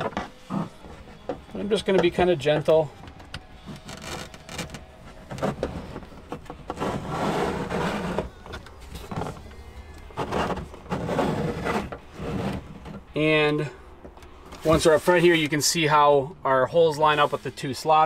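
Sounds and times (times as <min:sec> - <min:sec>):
bracket scraping against plastic: 0:00.0 - 0:13.1.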